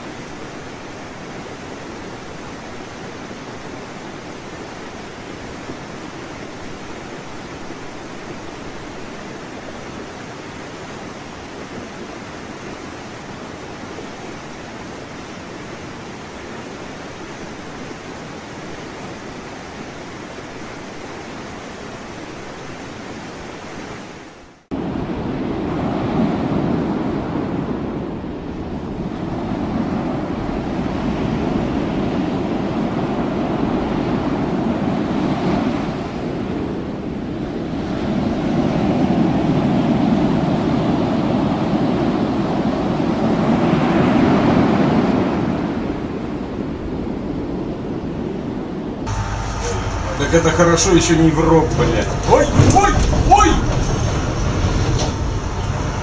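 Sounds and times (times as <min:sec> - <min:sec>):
waves breaking against shipwreck: 0:00.0 - 0:56.0
steady hiss: 0:49.1 - 0:52.6.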